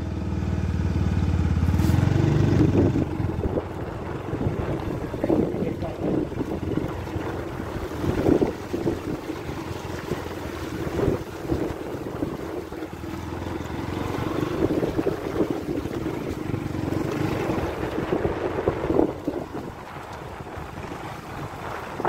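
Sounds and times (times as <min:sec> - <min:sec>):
motorcycle engine: 0:00.0 - 0:22.0
water splashing under wheels: 0:00.0 - 0:22.0
wind noise on microphone: 0:01.6 - 0:22.0.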